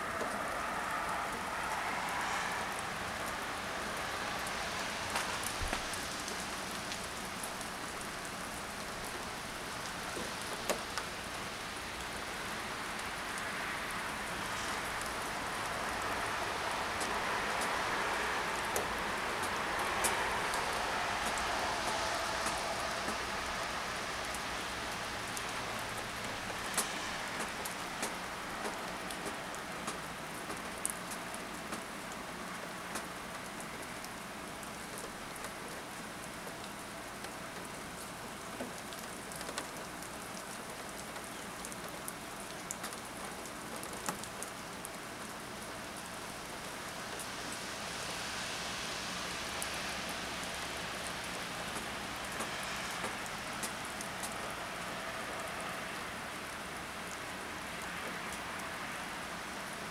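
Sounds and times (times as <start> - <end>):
wet snow hissing on leaves: 0.0 - 29.8, 46.7 - 56.2.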